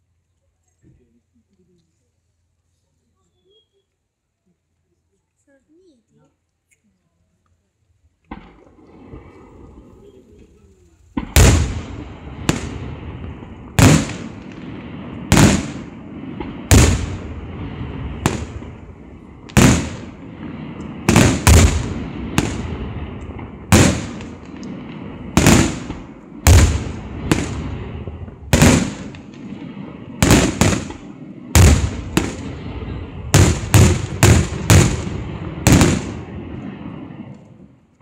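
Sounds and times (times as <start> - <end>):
fireworks bangs with echo: 11.2 - 37.7.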